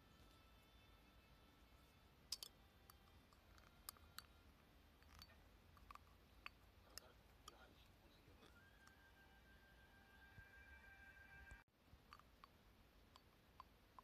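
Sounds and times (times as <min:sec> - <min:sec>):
faint irregular clicks: 0:05.0 - 0:09.0, 0:11.9 - 0:14.0.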